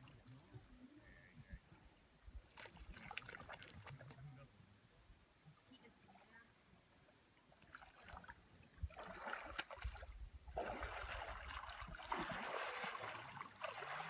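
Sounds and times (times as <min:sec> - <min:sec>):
water sloshing and splashing: 0:02.4 - 0:04.3, 0:07.5 - 0:14.0.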